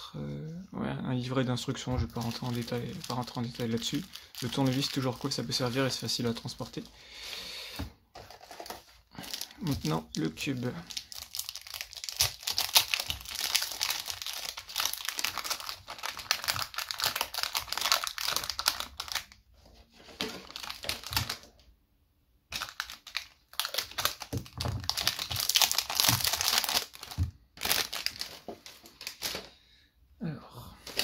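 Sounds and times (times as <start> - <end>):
plastic wrapping crinkling: 1.9 - 6.9, 8.2 - 19.4, 20.0 - 21.5, 22.5 - 29.5.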